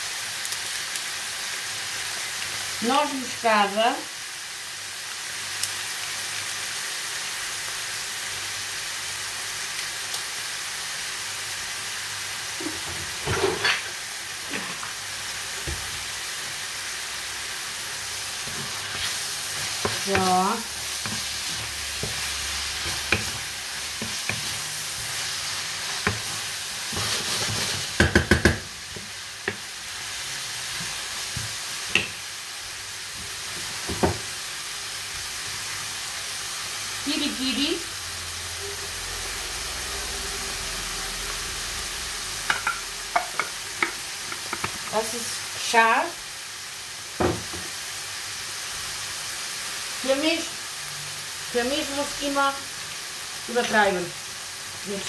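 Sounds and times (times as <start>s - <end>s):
food sizzling in a frying pan: 0.0s - 55.0s
utensil knocking: 28.0s - 28.6s.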